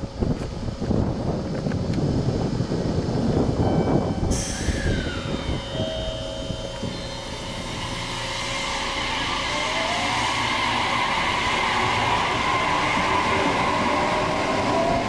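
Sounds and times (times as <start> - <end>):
wind on microphone: 0.0 - 7.8
train rail rumble: 0.0 - 15.0
electric motor whine: 4.5 - 15.0.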